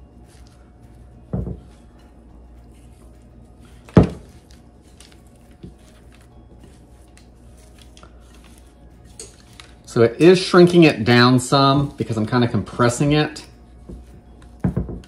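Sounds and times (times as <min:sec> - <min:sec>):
parchment paper rustling: 0:00.0 - 0:02.0, 0:02.6 - 0:12.8
glass bowl knocking on countertop: 0:01.3 - 0:01.6, 0:14.6 - 0:15.0.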